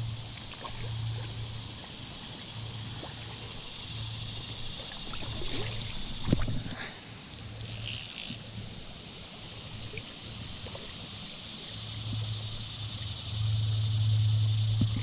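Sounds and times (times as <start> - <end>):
creek water running: 0.0 - 15.0
faint ticks: 6.3 - 8.5
low hum: 9.5 - 15.0.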